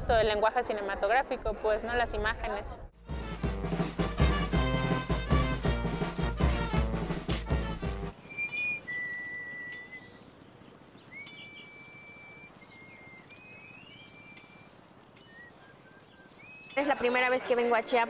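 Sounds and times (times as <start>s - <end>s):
music: 3.0s - 8.1s
small birds whistling: 8.1s - 17.4s.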